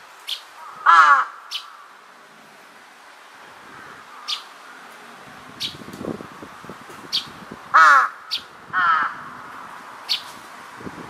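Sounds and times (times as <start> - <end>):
crow cawing harshly: 0.6 - 1.9, 7.7 - 9.7.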